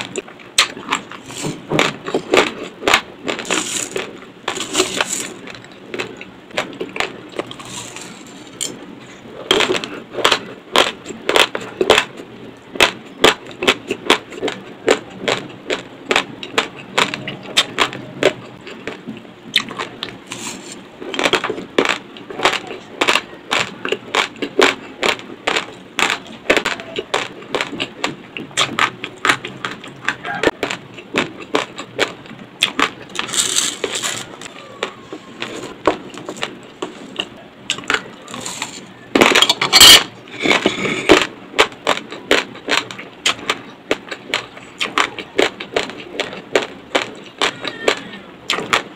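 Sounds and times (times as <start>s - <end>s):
raw rice being chewed: 0.0s - 48.9s
dry rice grains rustling: 3.4s - 5.4s, 33.2s - 34.5s.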